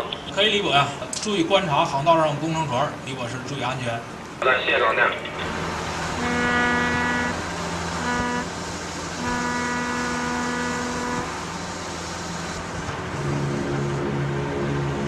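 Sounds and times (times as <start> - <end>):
steady low hum: 0.0 - 15.0
ship horn blasts: 5.4 - 15.0.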